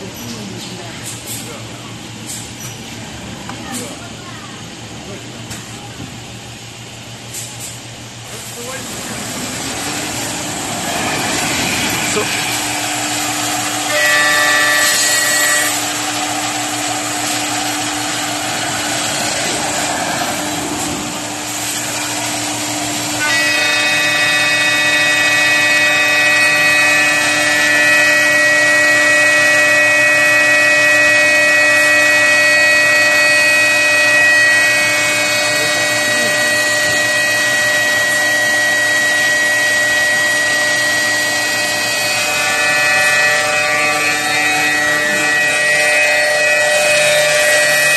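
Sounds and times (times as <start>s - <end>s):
higher machine whine: 5.0s - 47.9s
cnc spindle whine: 10.0s - 47.9s.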